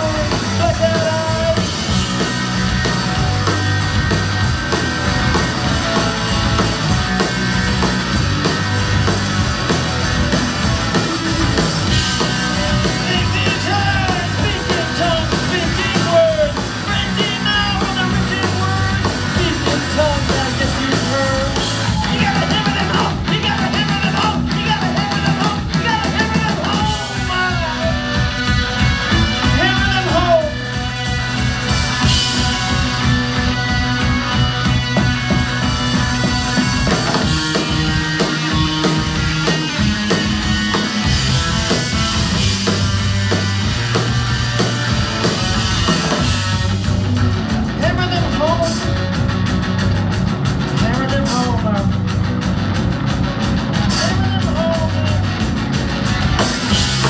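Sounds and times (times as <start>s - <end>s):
person singing: 0.0s - 1.8s, 12.5s - 28.1s
drum kit beat: 0.0s - 57.0s
electric bass: 0.0s - 57.0s
electric guitar: 0.0s - 57.0s.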